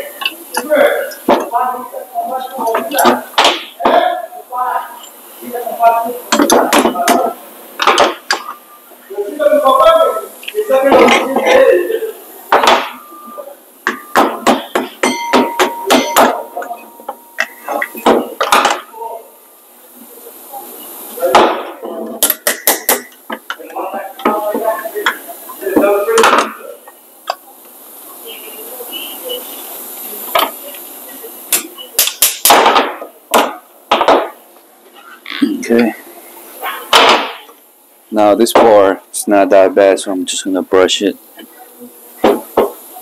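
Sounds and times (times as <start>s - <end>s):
sharp metallic knocks and clanks: 13.8s - 18.8s.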